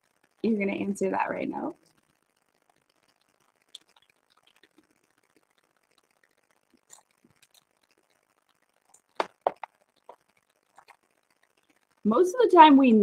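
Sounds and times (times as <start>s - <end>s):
faint clicks and taps: 1.8s - 12.1s.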